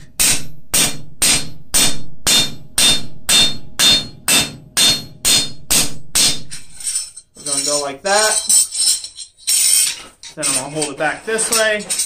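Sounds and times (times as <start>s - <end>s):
hammer ringing on steel: 0.0s - 6.8s.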